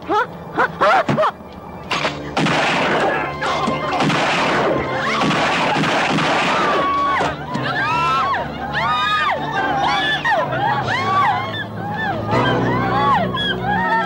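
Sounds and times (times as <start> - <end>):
action film music: 1.8 - 8.5
crashing and gunfire-like noise: 1.9 - 3.2, 3.9 - 6.9
voices shouting: 2.2 - 14.0.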